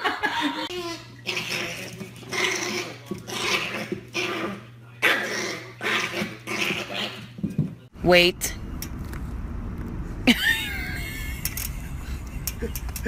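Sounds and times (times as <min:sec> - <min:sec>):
steady low hum: 0:07.8 - 0:13.0.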